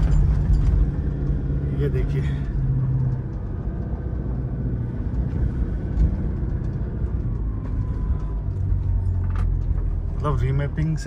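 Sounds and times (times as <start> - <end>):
car engine pulling under load: 0.0 - 11.0.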